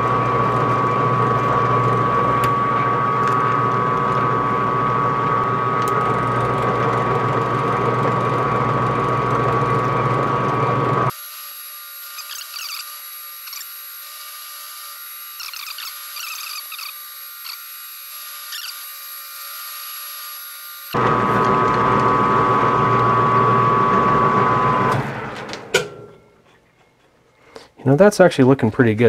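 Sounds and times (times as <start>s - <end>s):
metal lathe running: 0.0s - 25.2s
lathe whine: 0.0s - 26.0s
squeaky scratches of cutting tool: 12.0s - 19.0s.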